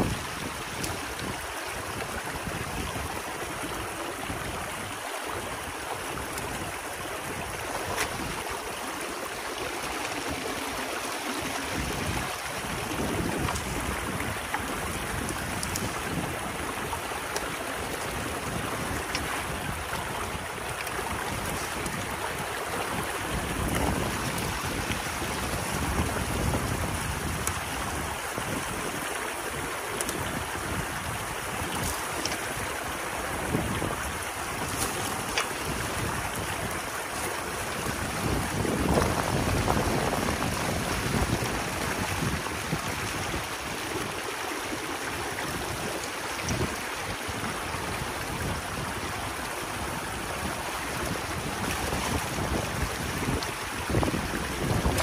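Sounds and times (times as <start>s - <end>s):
water rushing and gurgling: 0.0s - 55.0s
sticks clicking and splashing: 7.7s - 8.6s, 15.4s - 16.0s, 29.9s - 30.4s, 31.6s - 32.7s, 34.3s - 36.0s.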